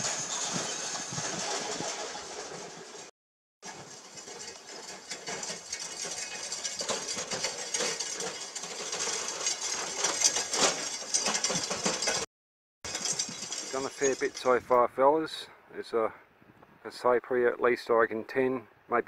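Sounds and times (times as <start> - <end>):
wheelbarrow rattling and clanking: 0.0 - 12.3, 12.9 - 14.5.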